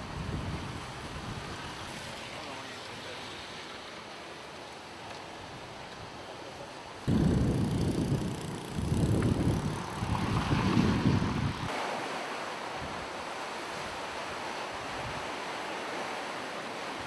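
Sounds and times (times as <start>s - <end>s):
soft hiss of wind: 0.0s - 17.0s
wind buffeting microphone: 7.1s - 11.7s.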